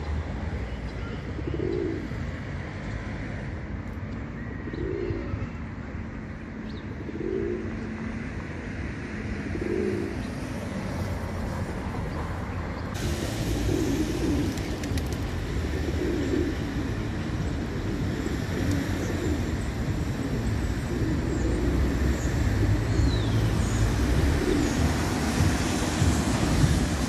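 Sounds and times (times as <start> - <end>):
pigeon cooing: 4.8 - 5.4, 7.0 - 7.8, 9.4 - 10.2, 13.5 - 16.9, 18.0 - 22.3, 24.1 - 25.4.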